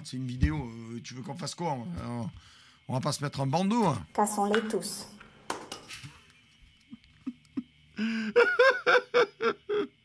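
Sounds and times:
man laughing: 6.9 - 10.0.

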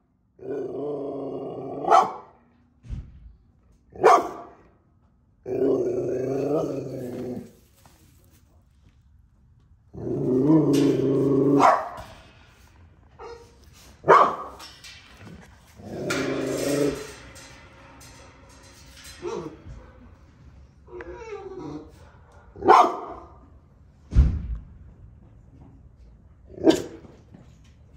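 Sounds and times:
dog barking: 1.8 - 2.4, 4.0 - 4.6, 11.5 - 12.0, 13.2 - 14.6, 22.1 - 23.4, 26.6 - 27.0
dog growling: 5.4 - 7.6, 9.9 - 11.6.

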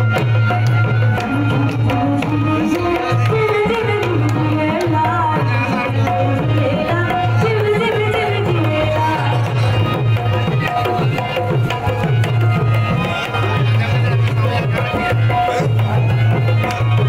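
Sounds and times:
hand drum beating: 0.0 - 17.0
woman singing: 1.2 - 9.9.

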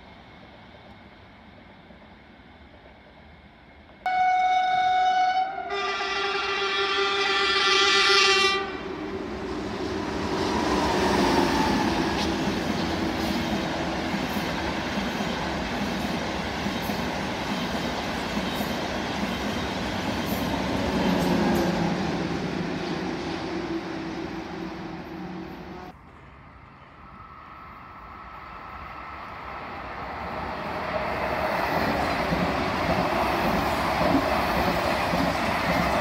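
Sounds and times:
train rushing past: 0.0 - 36.0
train horn: 4.1 - 9.1.

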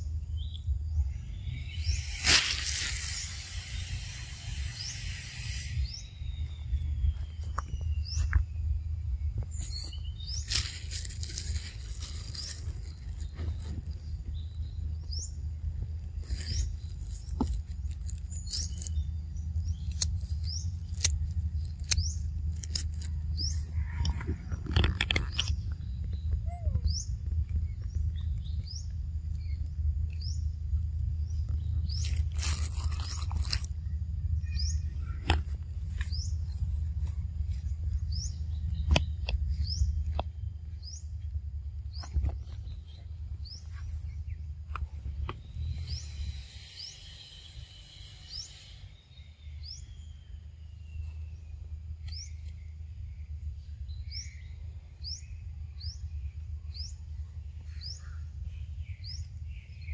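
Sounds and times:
bird chirping: 0.0 - 59.9
steady low hum: 0.0 - 59.9
burst of hissing noise: 1.7 - 6.4.

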